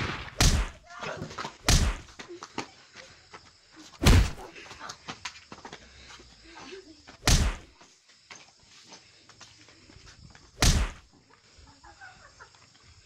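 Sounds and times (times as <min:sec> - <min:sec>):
loud impact thuds: 0:00.0 - 0:00.8, 0:01.6 - 0:02.1, 0:04.0 - 0:04.5, 0:07.2 - 0:07.7, 0:10.6 - 0:11.1.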